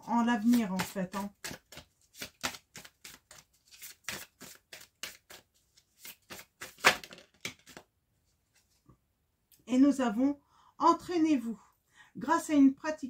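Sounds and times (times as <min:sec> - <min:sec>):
cards shuffling: 0:00.3 - 0:07.9.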